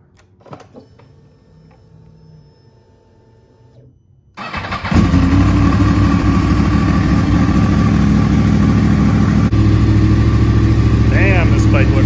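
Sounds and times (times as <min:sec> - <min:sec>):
electric starter cranking: 0:04.4 - 0:05.5
motorcycle engine idling: 0:04.5 - 0:12.0.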